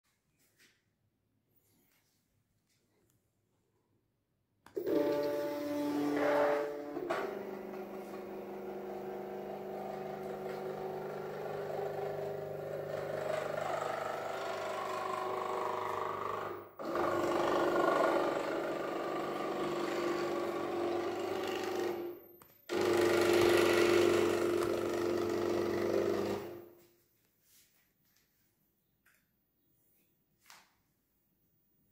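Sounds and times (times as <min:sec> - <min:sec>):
motors whining: 0:04.7 - 0:18.8.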